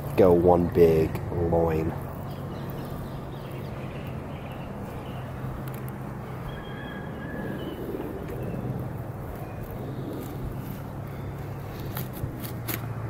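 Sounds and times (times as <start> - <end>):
high bird chirps: 2.1 - 5.6, 6.3 - 8.8.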